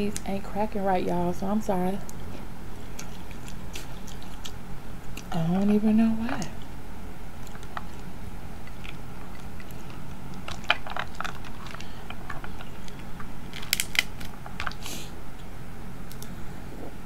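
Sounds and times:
crab shells cracking: 2.0s - 5.8s, 7.4s - 14.9s.

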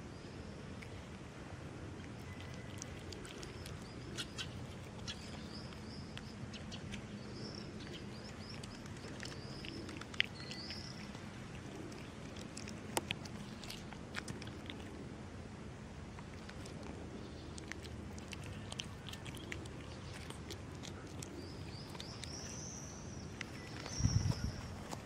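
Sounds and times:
cat chewing and lapping: 0.7s - 15.4s, 16.0s - 25.0s
birds chirping: 1.9s - 15.1s, 16.2s - 25.0s.

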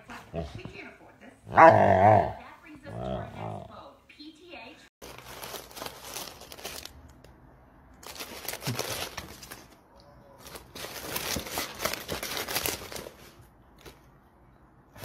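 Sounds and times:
paper and cardboard box rustling: 5.0s - 6.9s, 8.0s - 9.8s, 10.4s - 14.0s.

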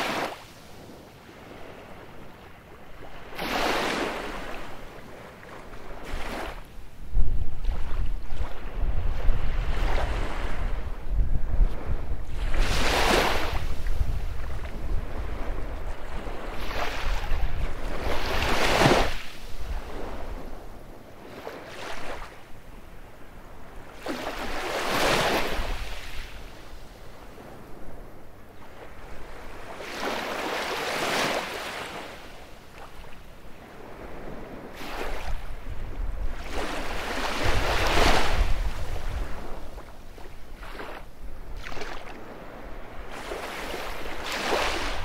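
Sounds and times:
waves breaking on a beach: 0.0s - 45.0s
wind buffeting microphone: 5.8s - 21.1s, 33.8s - 45.0s.

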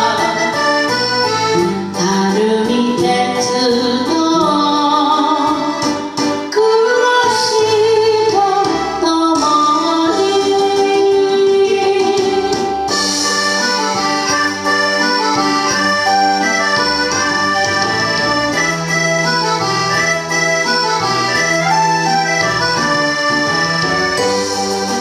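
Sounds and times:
instrumental karaoke backing track: 0.0s - 25.0s.

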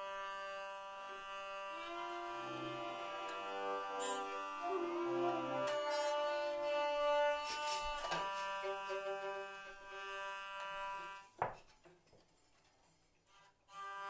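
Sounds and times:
hurdy-gurdy drone: 0.0s - 11.4s
fiddle: 0.0s - 11.6s, 13.3s - 14.0s
wooden flute: 0.0s - 11.6s, 13.3s - 14.0s.

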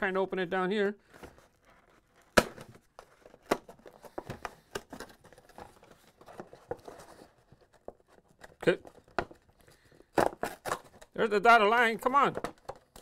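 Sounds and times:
cardboard box crinkling and creaking: 0.0s - 13.0s
cardboard snapping: 2.2s - 5.6s.

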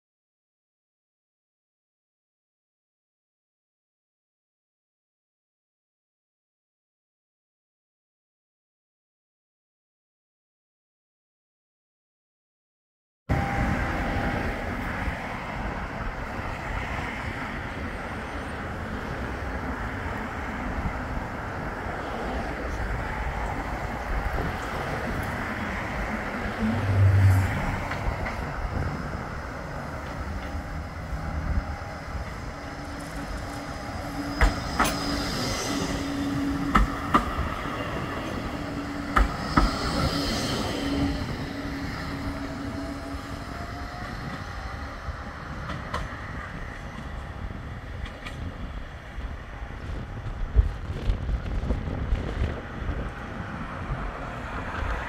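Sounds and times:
wind on microphone: 20.6s - 55.0s
rising motor whine: 26.4s - 28.0s.

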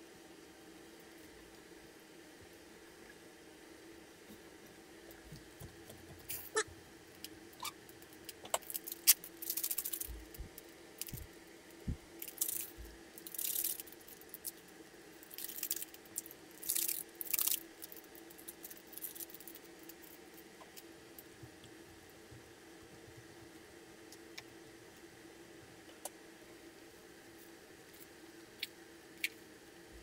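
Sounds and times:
faint steady hum: 0.0s - 30.0s
granules rustling from packet: 8.1s - 11.3s, 12.2s - 14.6s, 15.2s - 20.2s.

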